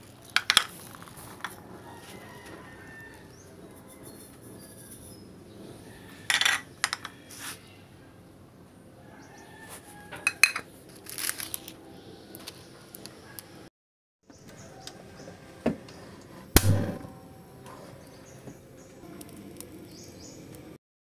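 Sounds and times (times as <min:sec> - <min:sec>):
ceramic bowl clinking: 0:10.3 - 0:10.6.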